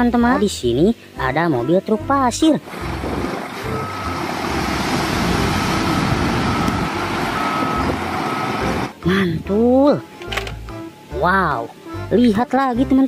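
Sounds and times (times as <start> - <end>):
diesel truck engine running: 2.1 - 11.3
high reversing beeper: 3.7 - 8.9.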